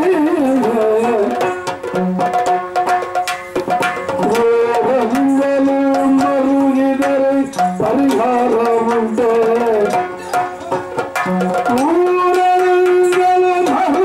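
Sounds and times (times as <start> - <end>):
drum strokes: 0.0 - 14.0.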